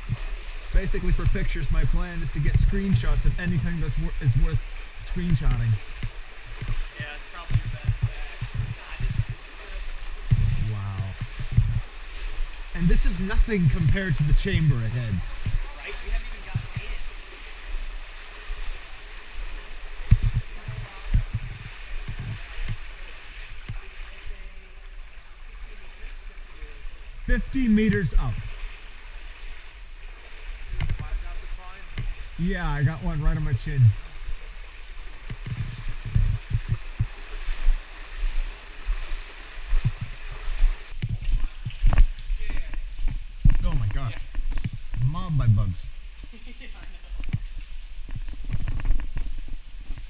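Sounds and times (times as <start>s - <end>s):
cave stream rushing: 0.0s - 50.0s
low thumps: 5.1s - 9.4s, 10.2s - 12.0s, 20.0s - 22.8s, 35.2s - 37.8s
short low thuds: 5.3s - 9.4s, 10.2s - 12.0s, 20.0s - 22.8s, 35.2s - 37.2s.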